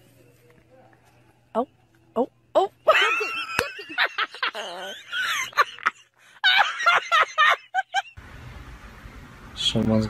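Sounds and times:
person laughing hard: 2.9s - 8.2s.

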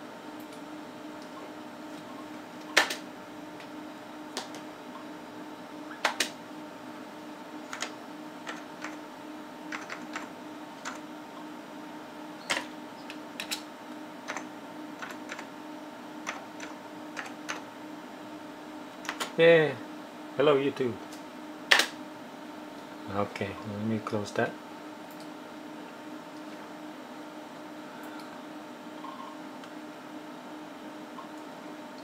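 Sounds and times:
computer keyboard keystrokes: 7.7s - 9.0s, 9.7s - 11.0s, 14.3s - 15.5s, 16.2s - 17.6s.

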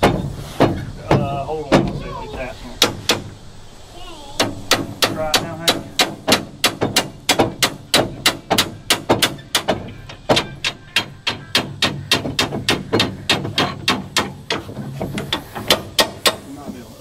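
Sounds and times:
rapid metallic knocking: 4.4s - 16.8s.

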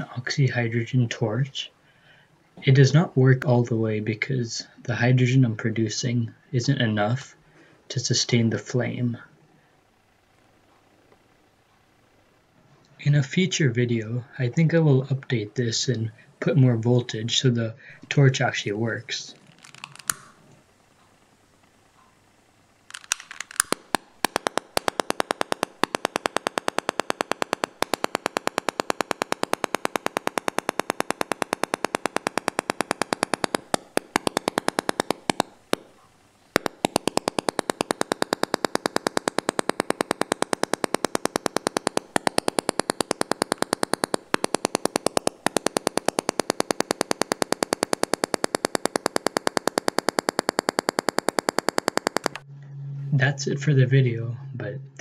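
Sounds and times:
rapid sharp pops: 18.4s - 52.4s.

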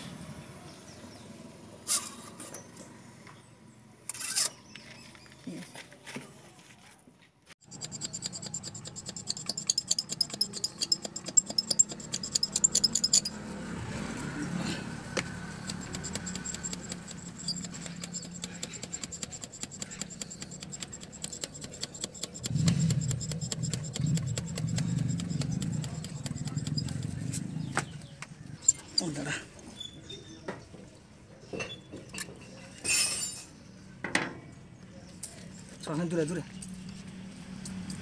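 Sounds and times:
hand primer pump clicking: 15.5s - 27.0s.

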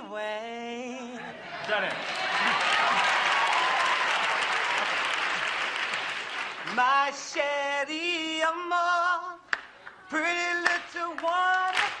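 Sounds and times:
audience applause: 1.6s - 6.8s
men singing unaccompanied: 6.7s - 9.5s, 10.1s - 12.0s.

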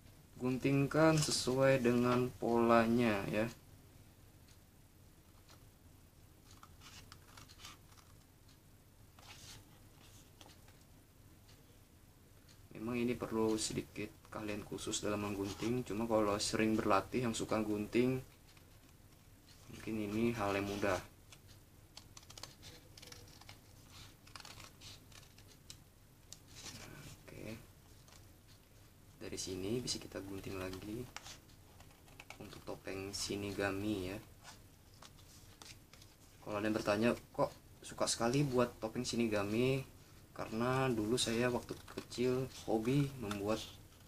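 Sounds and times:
scissors snipping paper: 22.0s - 25.7s.

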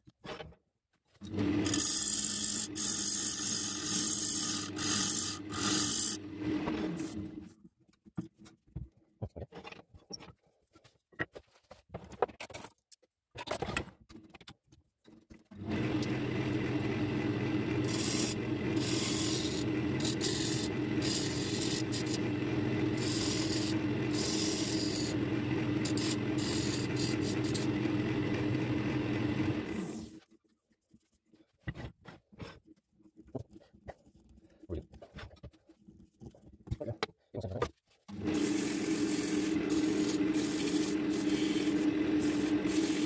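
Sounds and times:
machine motor humming: 15.6s - 30.1s, 38.1s - 43.0s.

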